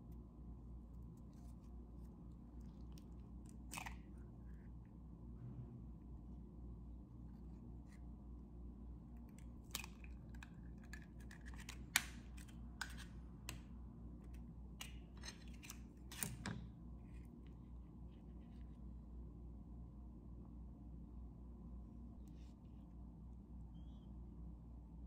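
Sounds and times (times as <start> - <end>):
eggs being cracked by hand: 9.2 - 16.5.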